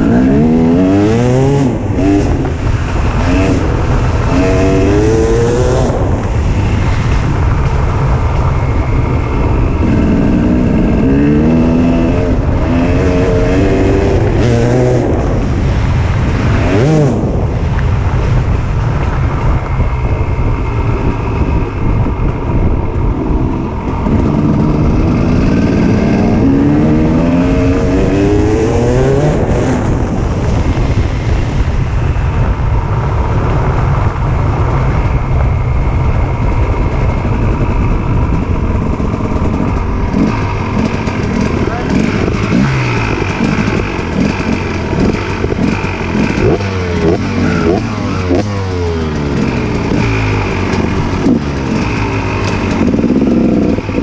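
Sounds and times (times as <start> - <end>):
dirt bike engine revving: 0.0 - 17.6, 23.1 - 30.2, 36.7 - 54.0.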